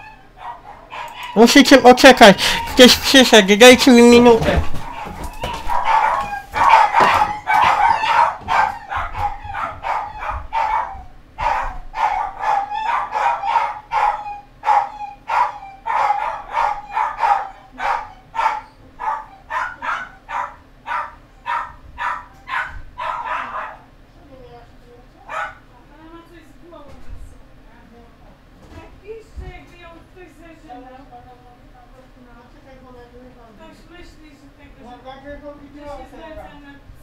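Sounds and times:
dogs barking: 0.0 - 1.4, 4.6 - 24.0, 25.2 - 25.7.

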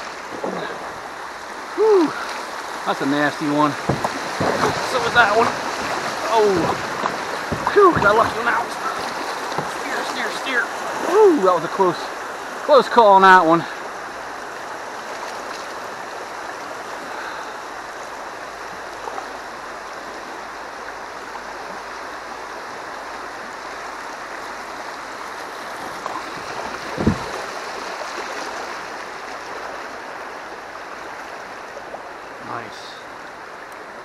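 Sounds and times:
river water rushing over rapids: 0.0 - 34.0
knock: 3.8 - 5.6, 6.4 - 8.4, 27.0 - 27.4.

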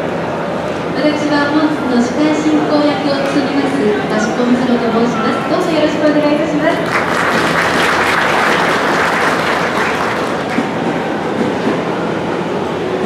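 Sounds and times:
audience applauding: 6.7 - 11.1.

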